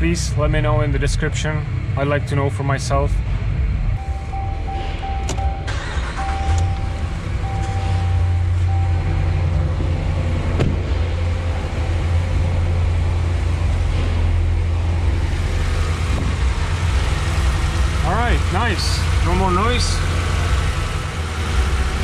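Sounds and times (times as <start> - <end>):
car engine starting and idling: 0.0 - 22.0
dashboard chime beeping: 4.0 - 9.6.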